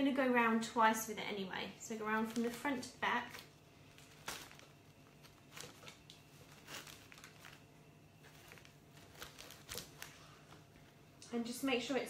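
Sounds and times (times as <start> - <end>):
low steady hum: 0.0 - 12.0
cellophane crinkling: 2.2 - 10.8.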